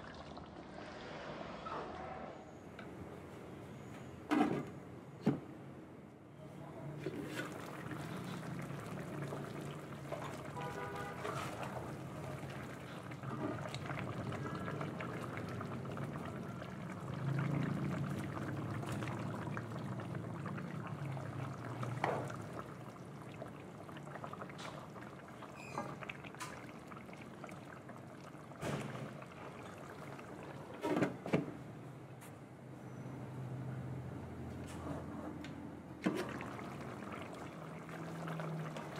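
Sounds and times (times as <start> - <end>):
stew bubbling in a pan: 0.0 - 1.3, 6.9 - 30.9, 36.0 - 38.9.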